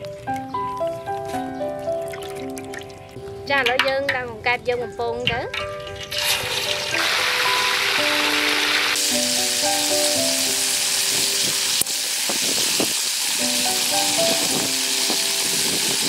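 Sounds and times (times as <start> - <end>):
plucked melody music: 0.0 - 12.4, 13.4 - 16.0
oil sizzling in a wok: 5.7 - 16.0.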